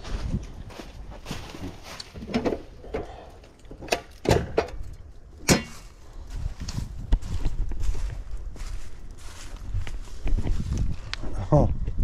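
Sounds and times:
clicks of tools and wires: 2.0s - 5.8s.

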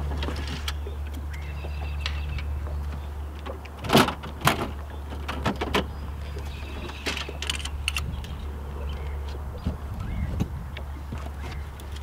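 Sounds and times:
fishing tackle clicks and knocks: 6.8s - 9.4s.

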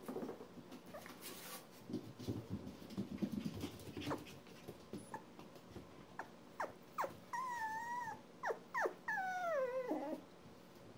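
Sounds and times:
rustling: 0.0s - 5.8s
puppy whining: 6.2s - 10.3s.

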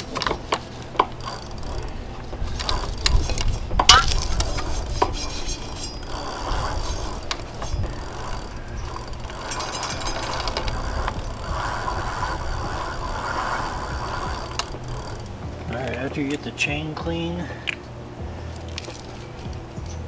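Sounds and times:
chain running through rag: 0.0s - 15.4s
bicycle freewheel ratcheting: 0.0s - 16.4s, 18.5s - 20.0s.

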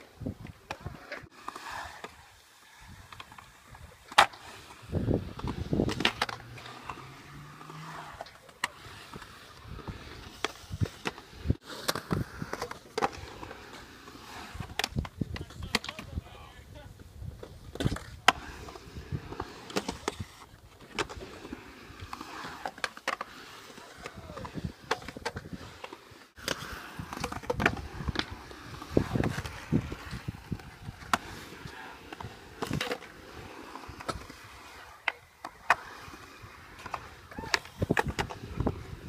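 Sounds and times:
skateboard wheels rolling on concrete: 0.0s - 39.0s
skateboard clacks: 2.9s - 16.3s, 17.0s - 39.0s.

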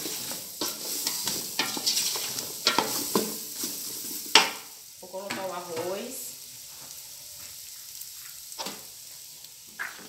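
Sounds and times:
frying fat sizzling: 0.0s - 10.0s
spoon scraping and knocking pot: 0.1s - 3.7s.

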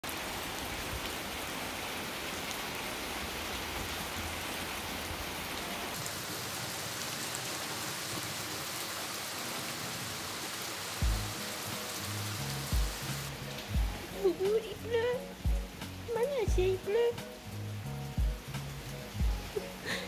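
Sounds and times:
rain falling on patio: 0.0s - 20.0s.

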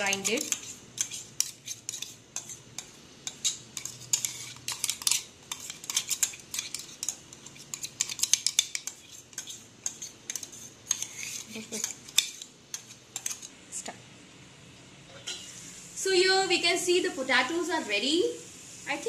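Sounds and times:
metal spoon scraping steel jar: 0.0s - 13.5s.

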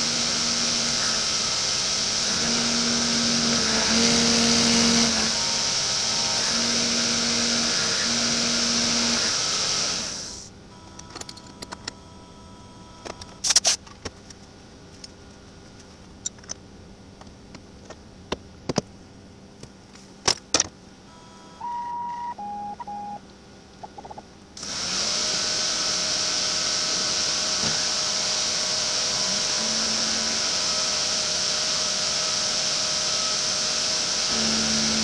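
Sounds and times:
milling machine running: 0.0s - 10.9s, 24.6s - 35.0s
short beeps: 21.1s - 23.2s.

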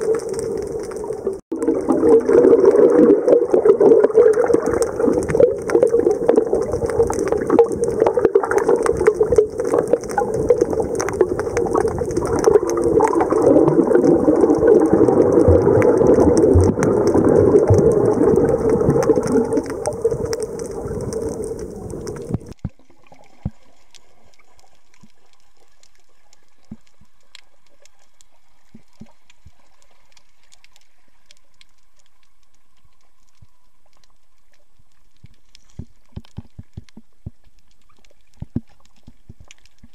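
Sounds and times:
muffled underwater rushing: 0.0s - 23.7s
faint clicks: 23.4s - 39.9s.

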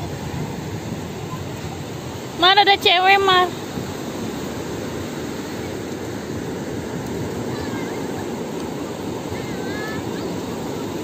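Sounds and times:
small waves breaking on beach: 0.0s - 11.0s
faint children's voices: 7.3s - 8.5s, 9.2s - 11.0s.

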